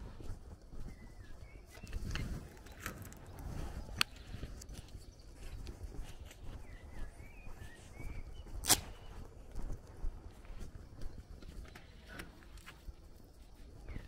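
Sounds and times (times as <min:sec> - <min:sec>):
footsteps on dirt: 0:00.0 - 0:14.0
faint bird chirps: 0:00.2 - 0:09.5, 0:11.0 - 0:14.0
sharp click: 0:08.6 - 0:09.0.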